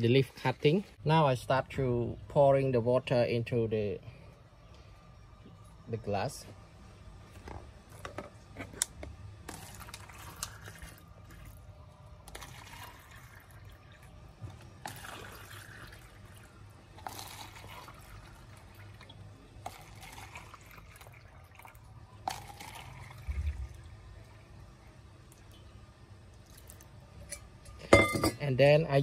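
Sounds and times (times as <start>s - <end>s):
water pouring into plastic cups: 9.4s - 24.6s, 25.2s - 27.1s.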